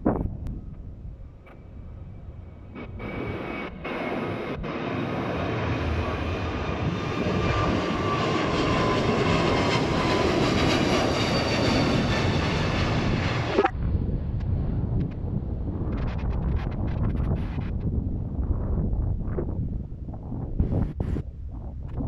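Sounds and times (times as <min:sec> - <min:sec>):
jet engines at takeoff power: 0:00.7 - 0:19.6
high jet whine: 0:01.4 - 0:14.6.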